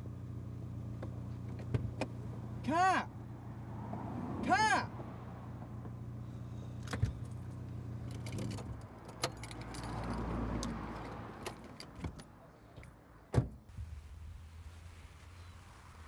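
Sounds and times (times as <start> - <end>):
car engine idling: 0.0 - 3.6, 5.0 - 9.0
keys jangling: 7.1 - 10.3
car door opening: 11.4 - 13.7
car door shutting: 13.3 - 13.9.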